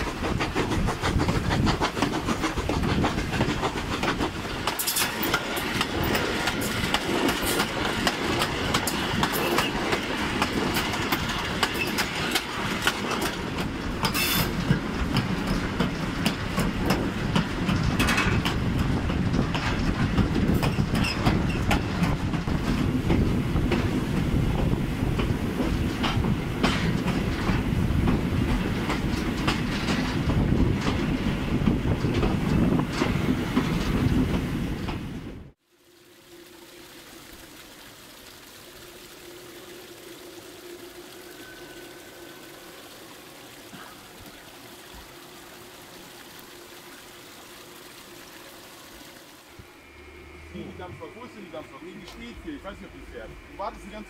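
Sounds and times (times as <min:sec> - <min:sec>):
wheels clacking over rail joints: 0:00.0 - 0:35.2
train rumble: 0:00.0 - 0:35.6, 0:38.2 - 0:54.0.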